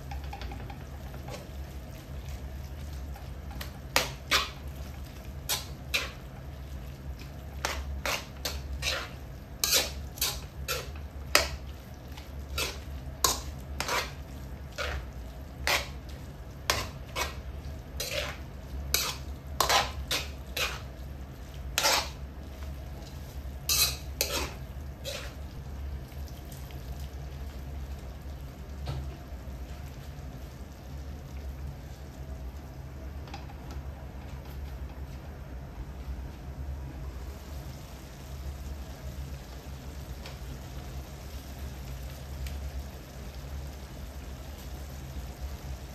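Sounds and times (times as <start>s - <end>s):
metal spoon scraping a wok: 3.5s - 6.3s, 7.5s - 20.9s, 21.7s - 22.2s, 23.7s - 25.4s.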